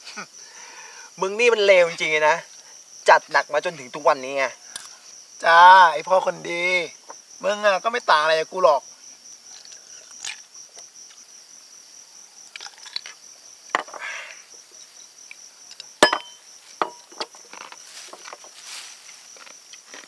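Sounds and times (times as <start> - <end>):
crickets chirping: 0.0 - 20.0
glass bottles clinking: 13.7 - 14.0, 16.0 - 17.3.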